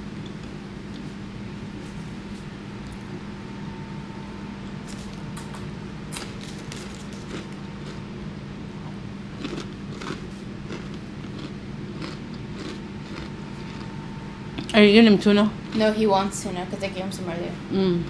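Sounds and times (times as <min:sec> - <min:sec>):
low hum: 0:00.0 - 0:18.0
chewing with wet mouth clicks: 0:09.4 - 0:13.9.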